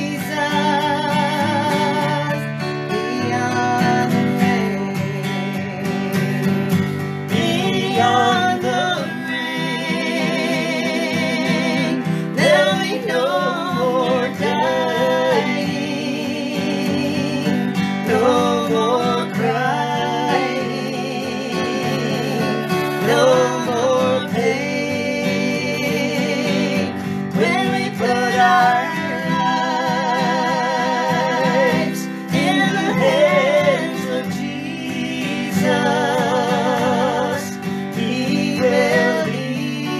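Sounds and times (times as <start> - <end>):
acoustic guitar strumming: 0.0 - 39.9
man and woman singing together: 0.0 - 39.9.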